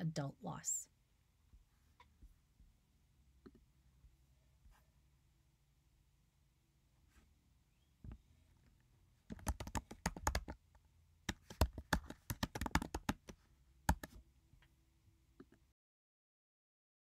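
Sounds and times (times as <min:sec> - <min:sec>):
keyboard keystrokes: 0:09.3 - 0:10.6, 0:11.3 - 0:14.2.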